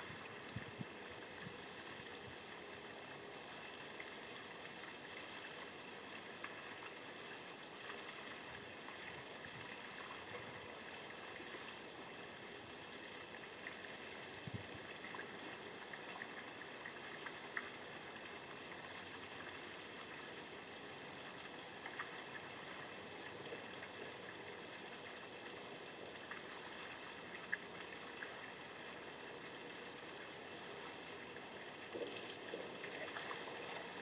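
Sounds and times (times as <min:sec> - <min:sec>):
steady microphone hiss: 0:00.0 - 0:34.0.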